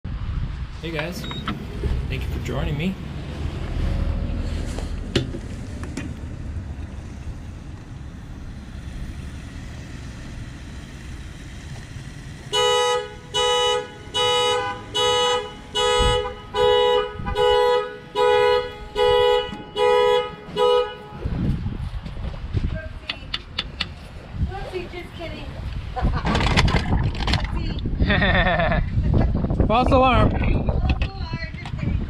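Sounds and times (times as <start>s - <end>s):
car alarm two-tone horn blasts: 12.5s - 21.4s.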